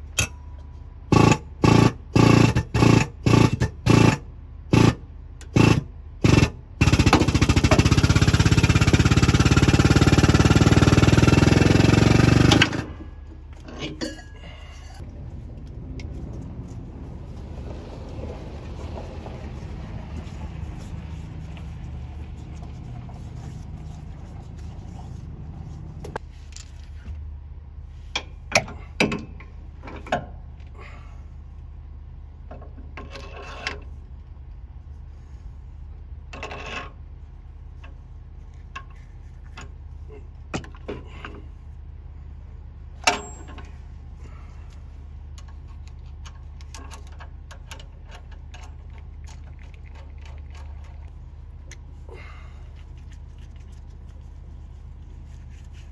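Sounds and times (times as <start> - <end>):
metal clinks and knocks: 13.4 - 15.0, 26.1 - 27.2, 43.0 - 43.8, 45.3 - 51.9.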